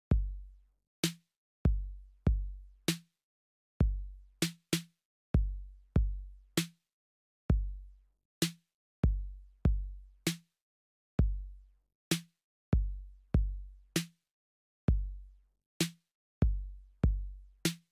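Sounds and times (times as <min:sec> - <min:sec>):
deep booming kick drum: 0:00.1 - 0:00.4, 0:09.0 - 0:09.9, 0:14.9 - 0:15.1, 0:16.4 - 0:17.3.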